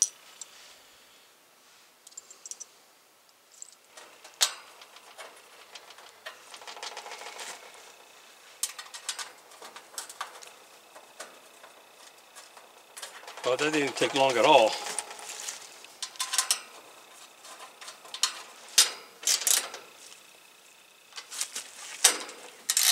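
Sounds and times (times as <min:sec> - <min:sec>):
sheet-metal panels clicking and rattling: 0:03.9 - 0:20.1, 0:21.1 - 0:22.9.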